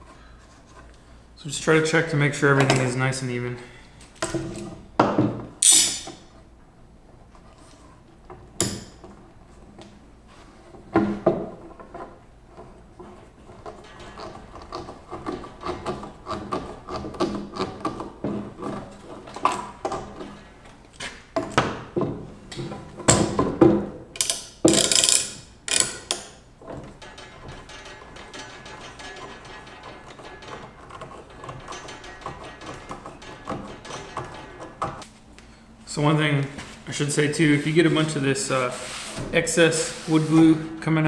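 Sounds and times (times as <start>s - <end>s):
clamp ratcheting clicks: 24.2s - 35.0s.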